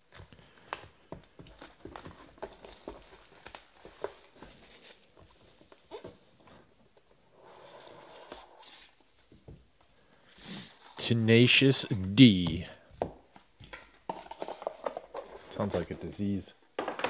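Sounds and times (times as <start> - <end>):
cardboard box rustle: 1.5 - 6.3.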